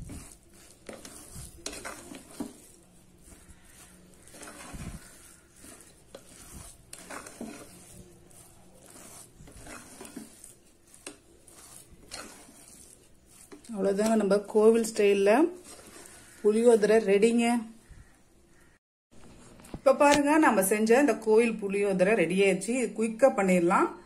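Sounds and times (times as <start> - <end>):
spatula stirring and scraping rice: 0.0 - 18.8.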